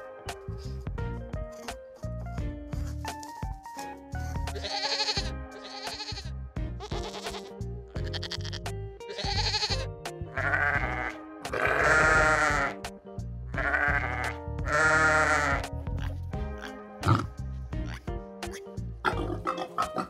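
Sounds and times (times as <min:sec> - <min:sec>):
background music: 0:00.0 - 0:20.0
goat bleating: 0:04.6 - 0:12.8, 0:13.6 - 0:16.2
sheep bleating: 0:04.6 - 0:12.8, 0:13.6 - 0:16.1.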